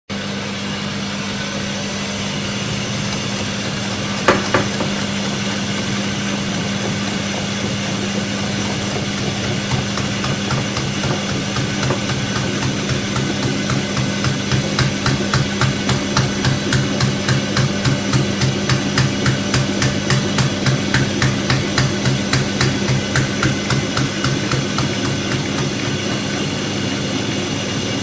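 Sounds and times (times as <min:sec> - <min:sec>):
washing machine motor hum: 0:00.1 - 0:28.0
sharp knocks: 0:04.2 - 0:05.9.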